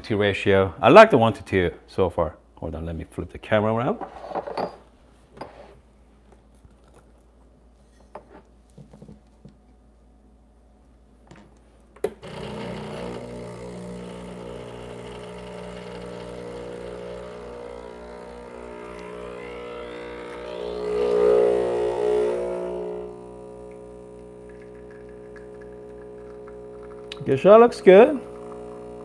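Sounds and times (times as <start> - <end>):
espresso machine pump buzzing: 12.1 - 29.0
espresso dripping: 12.2 - 29.0.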